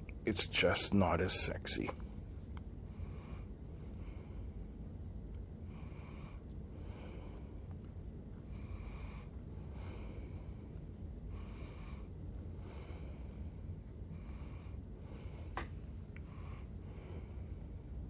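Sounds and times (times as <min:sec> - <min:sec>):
low steady hum: 0:00.0 - 0:18.0
man breathing through nose: 0:05.6 - 0:07.7, 0:08.5 - 0:10.7, 0:11.3 - 0:15.6.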